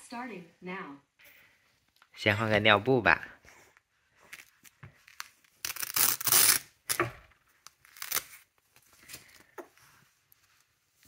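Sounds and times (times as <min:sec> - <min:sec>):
velcro ripping open: 0:04.3 - 0:07.0, 0:07.6 - 0:08.6.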